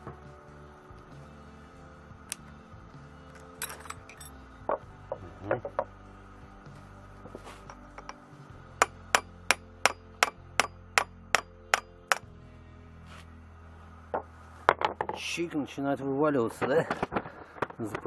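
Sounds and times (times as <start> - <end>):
hammer tapping on steel: 7.7 - 8.2, 8.8 - 12.3.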